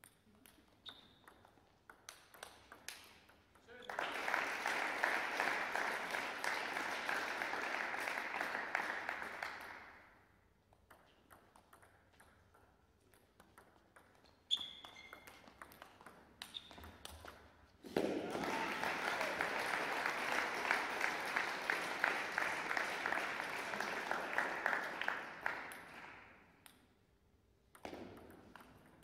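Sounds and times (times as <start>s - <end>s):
table tennis ball clicks: 0.0s - 3.6s, 10.7s - 17.5s
spectators clapping: 3.7s - 10.0s, 17.9s - 26.4s.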